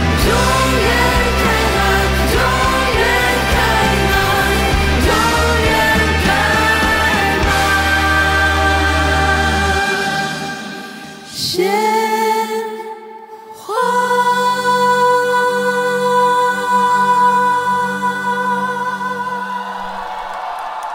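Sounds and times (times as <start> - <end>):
musical accompaniment: 0.0 - 11.4
women singing in harmony: 0.0 - 20.1.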